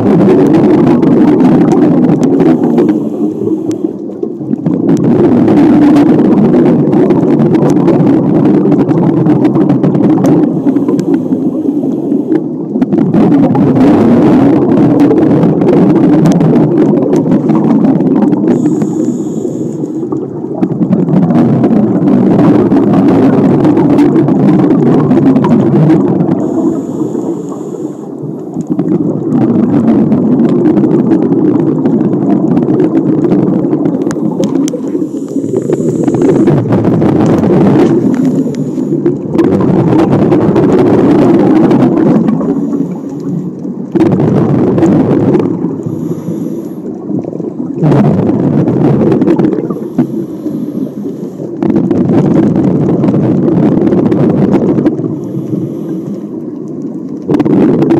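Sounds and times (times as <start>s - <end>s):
exhaust bubbles rumbling: 0.0s - 57.9s
scuba inhalation with high tone: 2.2s - 4.2s, 10.4s - 12.6s, 17.4s - 20.2s, 26.3s - 28.6s, 34.0s - 39.4s, 40.1s - 43.6s, 45.5s - 47.7s, 49.4s - 51.6s, 55.0s - 56.5s.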